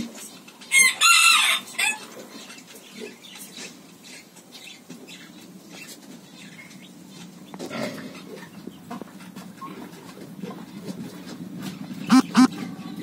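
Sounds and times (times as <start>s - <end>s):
birds chirping: 11.7s - 13.0s
loud bird call: 12.1s - 12.6s.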